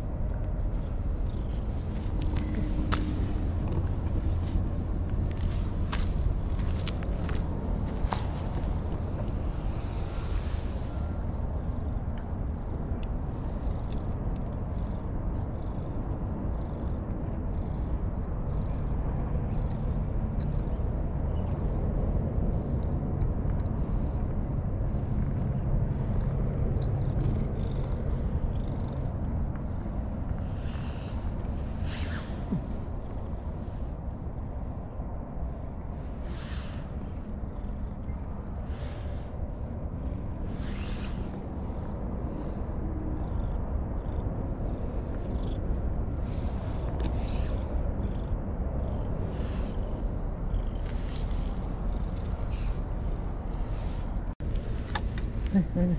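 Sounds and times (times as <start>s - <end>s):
cat purring: 25.0s - 55.8s.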